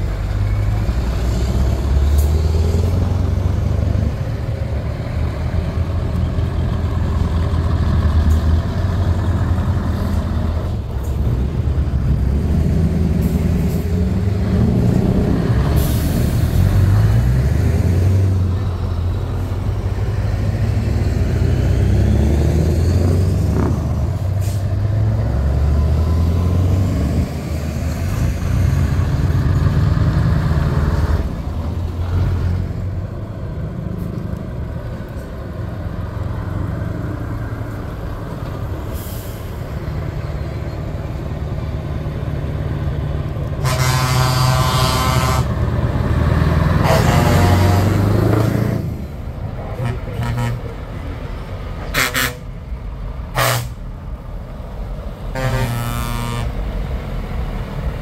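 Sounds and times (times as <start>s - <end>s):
diesel trucks passing by: 0.0s - 58.0s
air horn: 43.6s - 45.6s, 46.8s - 48.0s, 49.8s - 50.7s, 51.9s - 52.5s, 53.3s - 53.8s, 55.3s - 56.6s.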